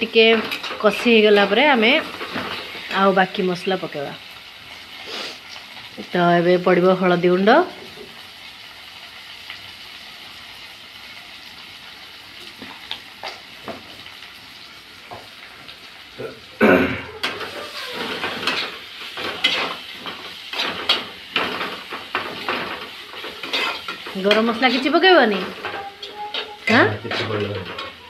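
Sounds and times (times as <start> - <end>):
masala sizzling in oil: 0.0 - 28.0
spatula scraping and knocking pan: 17.2 - 28.0.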